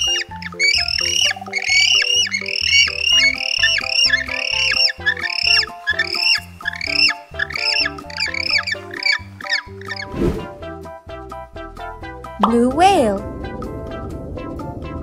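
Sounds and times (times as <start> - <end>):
penguins calling: 0.0 - 10.1
background music: 0.0 - 15.0.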